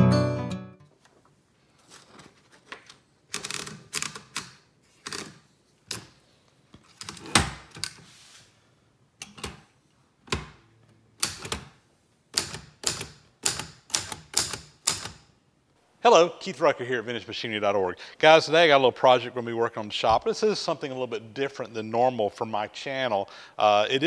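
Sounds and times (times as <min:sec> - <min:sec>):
manual typewriter clacking: 0:03.3 - 0:06.1, 0:11.2 - 0:15.3.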